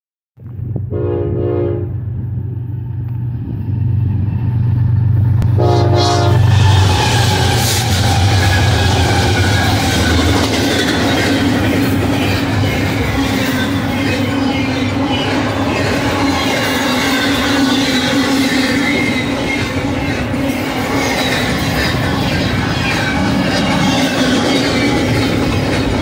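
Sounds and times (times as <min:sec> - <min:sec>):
locomotive horn blasts: 0:00.9 - 0:02.0, 0:05.5 - 0:06.6
train wheels rattling on rails: 0:02.0 - 0:26.0.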